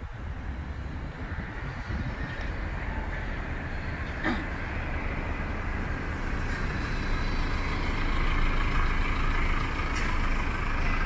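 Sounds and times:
road rumble: 0.0s - 11.0s
lorry engine driving past: 4.7s - 11.0s.

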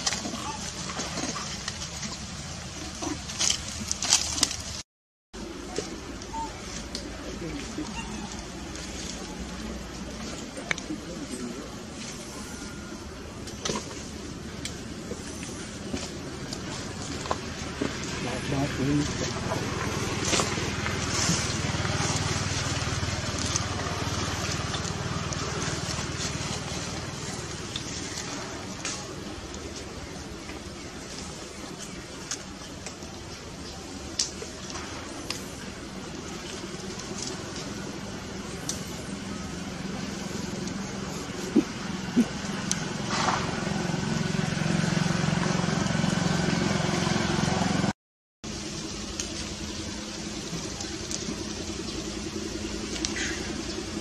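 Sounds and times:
engine running: 0.0s - 4.8s, 5.4s - 54.0s.

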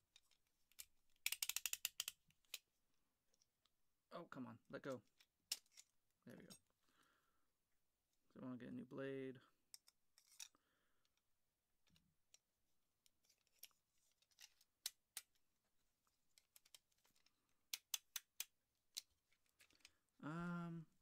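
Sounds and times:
man humming: 20.2s - 21.0s.

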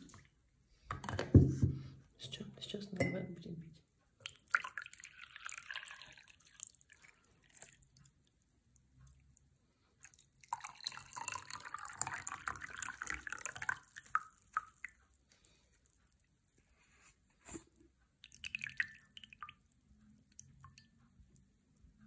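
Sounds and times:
tea pouring into a glass: 4.2s - 8.0s, 10.0s - 15.0s, 18.2s - 19.6s.

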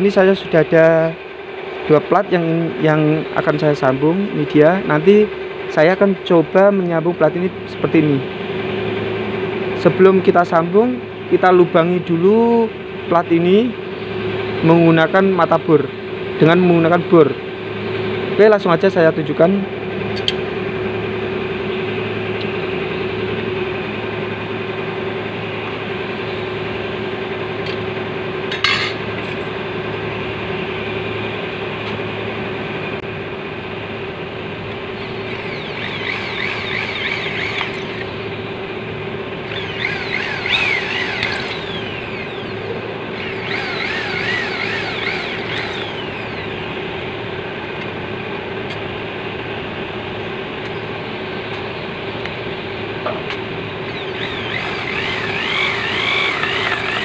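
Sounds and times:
steady hum: 28.8s - 57.0s
electric drill boring through metal: 35.0s - 38.3s, 39.5s - 46.9s, 53.8s - 57.0s.

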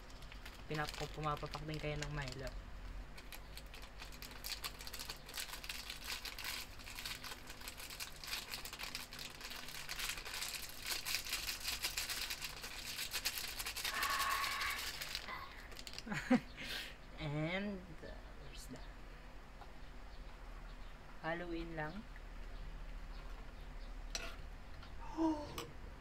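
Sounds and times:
plastic sachet crinkling and tearing: 0.0s - 2.5s, 3.1s - 16.1s.

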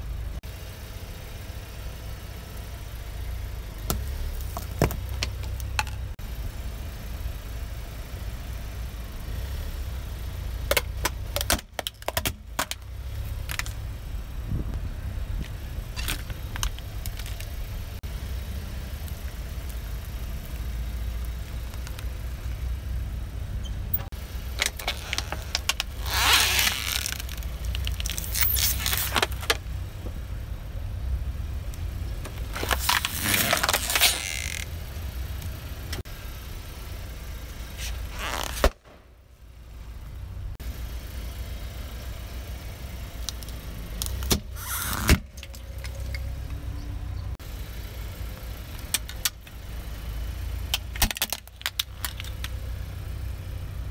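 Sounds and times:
car engine idling: 0.0s - 53.9s
tyre crushing plastic: 24.6s - 29.6s, 32.4s - 34.6s
plastic snapping: 50.7s - 52.6s.

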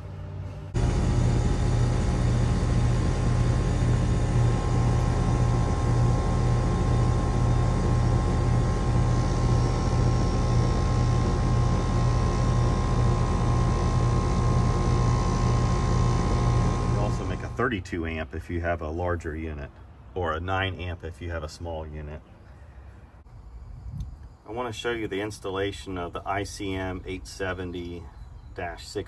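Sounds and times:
air conditioner unit humming: 0.7s - 17.8s.

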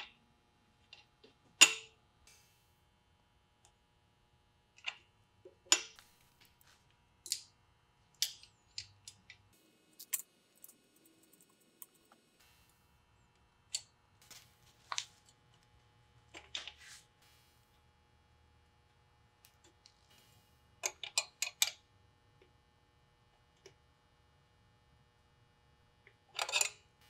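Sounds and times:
metal fittings clicking and clinking: 8.2s - 12.2s.

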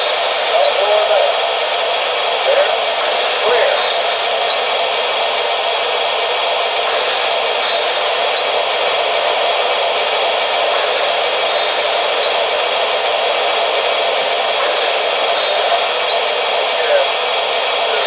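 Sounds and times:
steady hiss with high tones: 0.0s - 18.0s.

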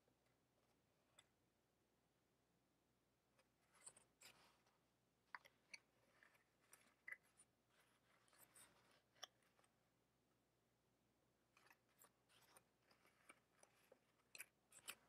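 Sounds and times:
paper plate and yarn rustling: 3.4s - 4.8s, 5.4s - 9.8s, 11.5s - 15.0s.

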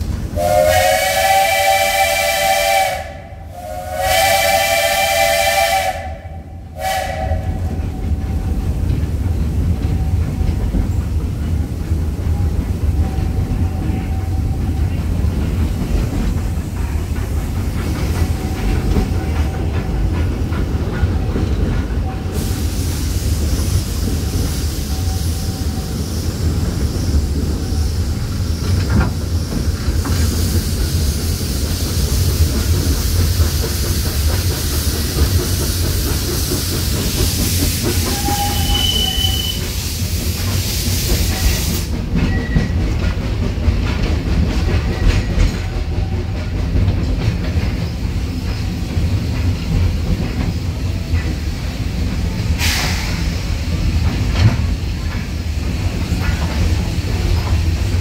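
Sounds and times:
train rumbling on track: 0.0s - 58.0s
wheels clacking on rails: 0.0s - 58.0s
hiss: 22.2s - 42.2s, 46.6s - 58.0s.

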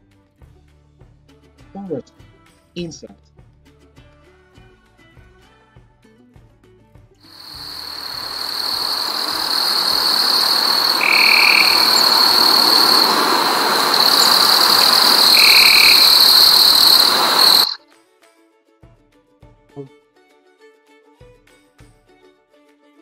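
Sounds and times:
insects droning: 7.3s - 17.8s
short lower insect calls: 7.3s - 17.8s.

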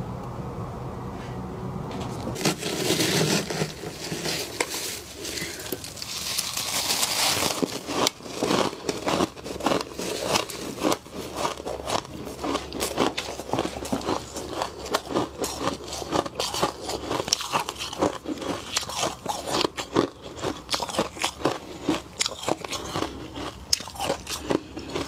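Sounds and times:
frost crunching and crackling: 1.9s - 25.0s
falling ice crystals pattering: 2.4s - 11.4s.

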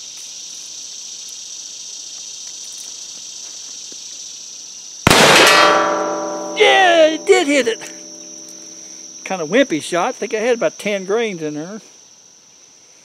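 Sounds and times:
insects chirring: 0.0s - 13.0s
pistol shot: 5.1s - 6.6s.

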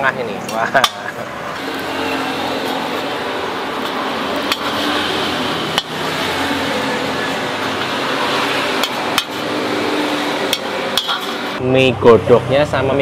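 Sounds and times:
sharp metallic knocks: 3.8s - 5.0s, 5.7s - 6.0s, 8.7s - 9.5s, 10.4s - 11.6s
metal spatula scraping wok: 10.3s - 11.6s.

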